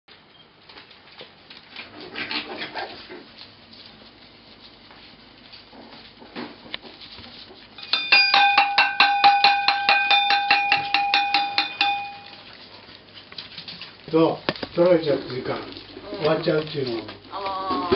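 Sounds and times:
metal bowl clattering and ringing: 7.8s - 12.5s.

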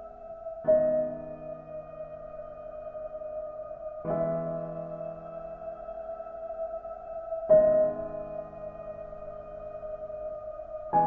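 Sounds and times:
calm ambient music chords: 0.0s - 11.0s.

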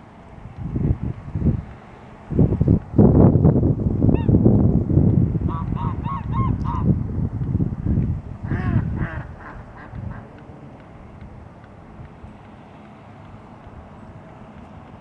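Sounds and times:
wind rumble on microphone: 0.0s - 15.0s
geese honking: 5.5s - 6.9s, 8.5s - 10.5s.

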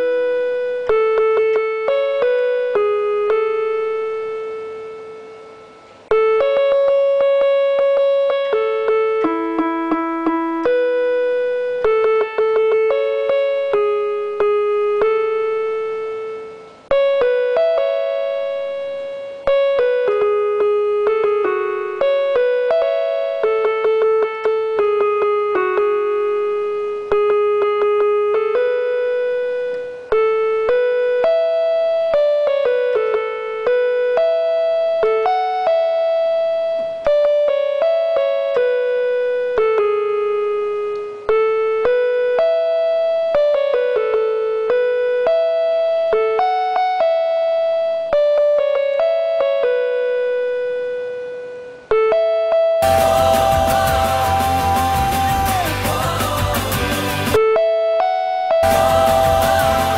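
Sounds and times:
electronic keyboard melody: 0.0s - 59.9s.

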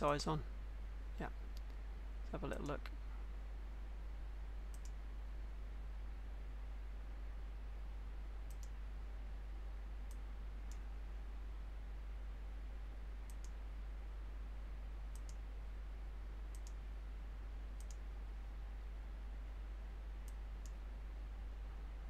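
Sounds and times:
steady low hum: 0.0s - 22.0s
computer mouse clicks: 4.7s - 5.0s, 8.5s - 8.8s, 13.2s - 13.6s, 15.1s - 15.4s, 16.5s - 16.8s, 17.8s - 18.0s, 20.2s - 20.8s.

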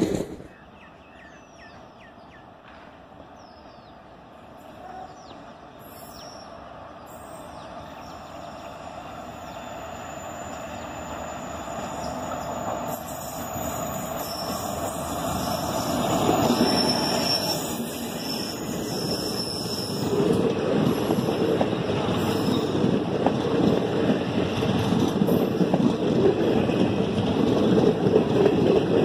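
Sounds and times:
train rumbling: 0.0s - 0.9s, 1.7s - 29.0s
bird chirping: 0.4s - 2.5s.

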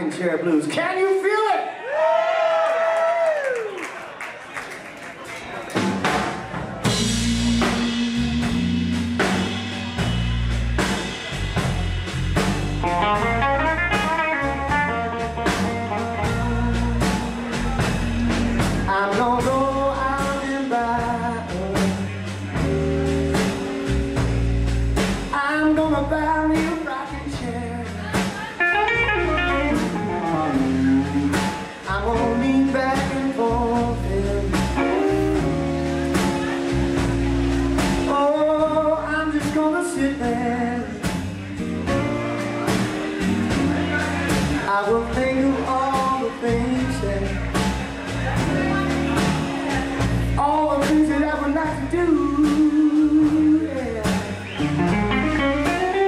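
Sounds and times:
drum kit beat: 5.6s - 56.0s
man singing: 6.8s - 9.9s, 14.9s - 22.8s, 25.3s - 35.5s, 38.0s - 42.0s, 43.2s - 55.9s
electric guitar: 12.4s - 25.3s, 27.4s - 39.0s, 52.1s - 56.0s.

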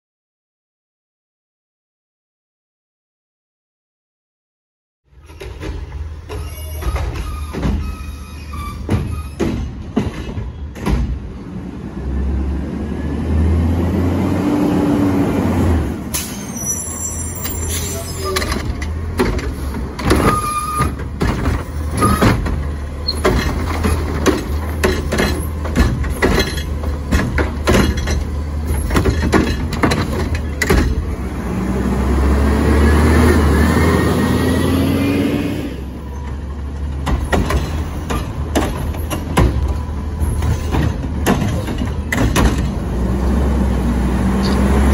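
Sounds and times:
recycling carts banging and clattering: 5.1s - 12.7s, 13.3s - 34.8s, 35.4s - 44.9s
garbage truck diesel engine revving: 11.4s - 16.1s, 21.0s - 44.9s.

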